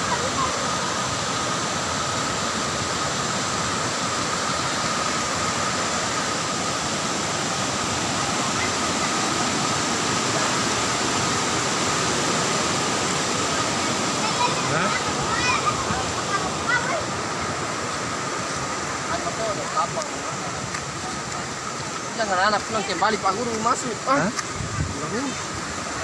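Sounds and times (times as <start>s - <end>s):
waterfall roaring: 0.0s - 26.0s.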